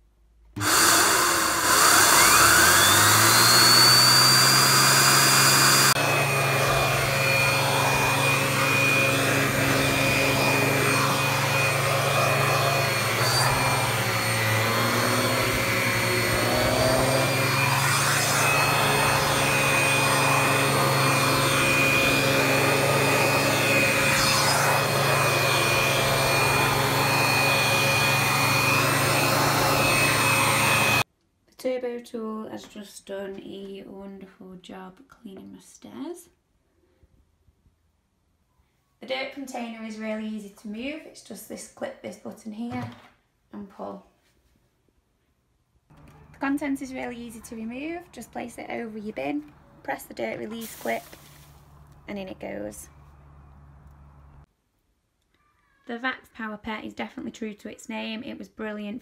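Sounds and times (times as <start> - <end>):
brush roll whine: 0.6 - 31.0
vacuum cleaner running: 0.6 - 31.1, 45.9 - 49.6, 50.2 - 54.4.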